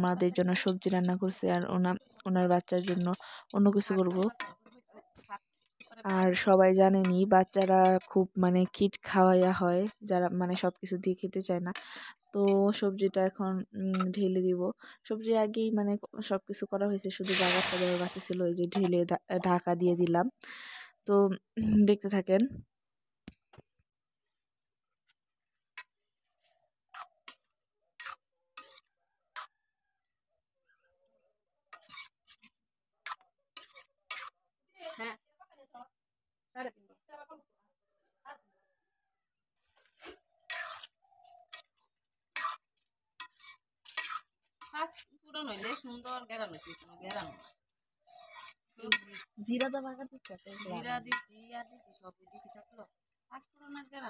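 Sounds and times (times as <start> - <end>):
person talking: 0.0 - 4.3, 6.1 - 11.7, 17.0 - 20.3, 21.1 - 22.6, 50.6 - 51.2
metal spatula scraping a wok: 0.2 - 12.8, 13.9 - 14.2, 17.2 - 18.9, 25.8 - 29.5, 31.7 - 35.1, 39.8 - 51.9.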